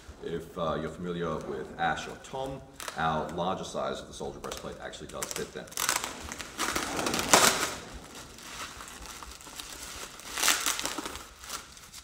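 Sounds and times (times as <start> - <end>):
bubble wrap crinkling: 2.4 - 12.0
plastic bag rustling: 4.4 - 12.0.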